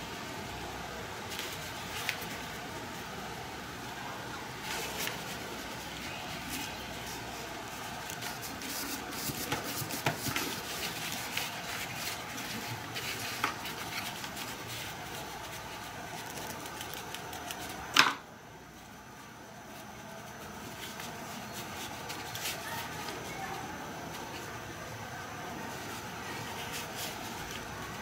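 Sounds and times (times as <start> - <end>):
awl scratching and clicking: 4.6 - 17.9.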